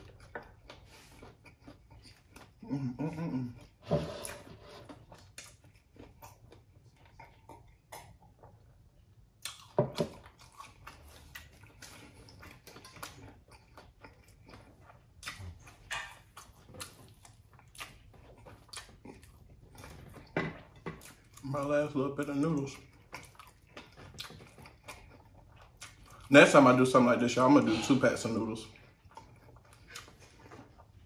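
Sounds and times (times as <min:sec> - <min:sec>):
wet chewing and smacking: 0:00.0 - 0:02.7, 0:04.9 - 0:31.0.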